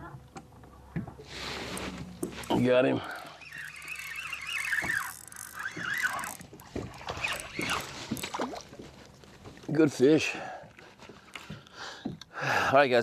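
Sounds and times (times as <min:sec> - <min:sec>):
high wavering squeal: 0:03.0 - 0:06.4, 0:07.0 - 0:07.9.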